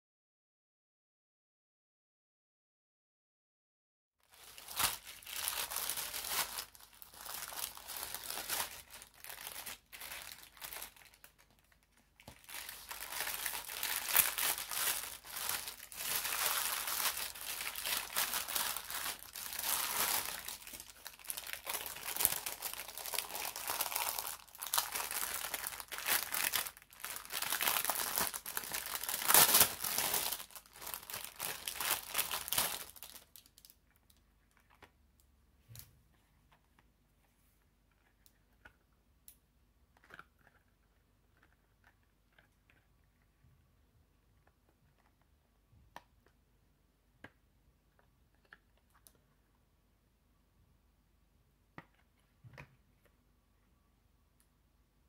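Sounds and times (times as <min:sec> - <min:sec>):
plastic packaging crinkling: 0:04.2 - 0:35.0.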